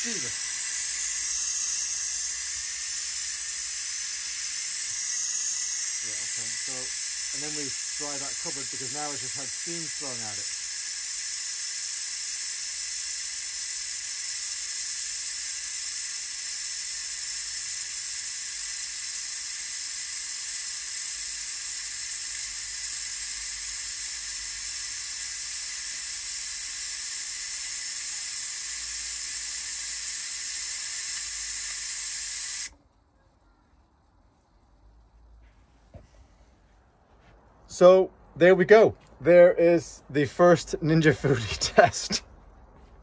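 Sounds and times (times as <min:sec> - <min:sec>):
pressure cooker steam hissing: 0:00.0 - 0:32.8.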